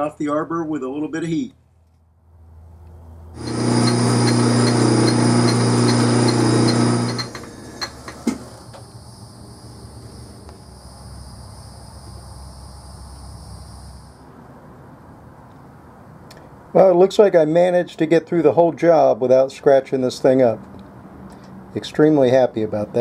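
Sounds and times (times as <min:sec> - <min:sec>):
gas torch hissing: 0:03.4 - 0:09.0.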